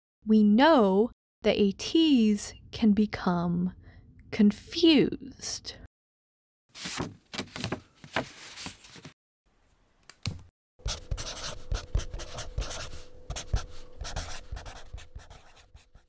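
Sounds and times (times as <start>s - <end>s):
pen scratching on paper: 10.8s - 16.0s
faint steady hum: 10.9s - 15.7s.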